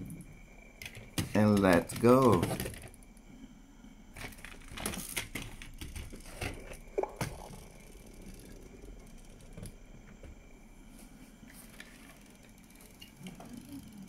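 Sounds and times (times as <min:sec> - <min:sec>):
toy cars clicking and knocking: 0:00.8 - 0:03.1, 0:04.1 - 0:09.8, 0:11.6 - 0:14.0.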